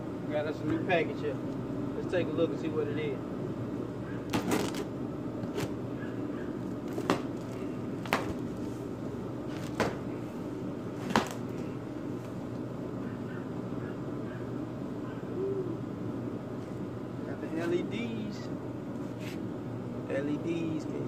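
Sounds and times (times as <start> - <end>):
cardboard snapping and crackling: 4.3 - 5.8, 6.8 - 8.5.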